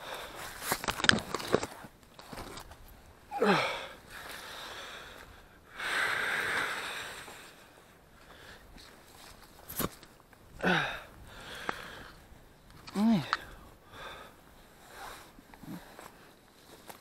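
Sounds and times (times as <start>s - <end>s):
person breathing heavily: 0.0s - 0.6s, 3.3s - 8.7s, 10.6s - 12.2s, 13.0s - 16.3s
leaves rustling: 0.0s - 10.7s
hands and boots scraping branches: 0.1s - 2.9s, 8.8s - 10.2s
person groaning: 3.3s - 4.0s, 13.0s - 13.4s.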